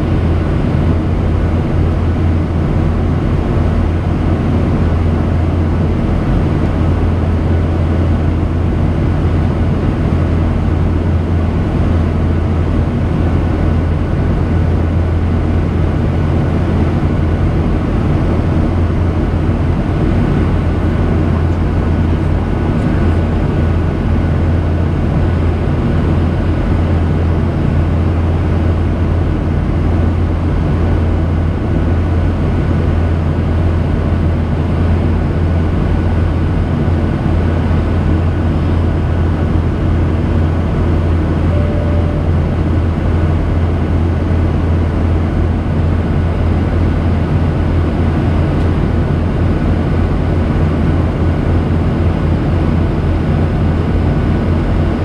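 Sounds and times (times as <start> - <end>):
jet engine drone: 0.0 - 55.0
low hum: 0.0 - 55.0
faint high tone: 41.4 - 43.0.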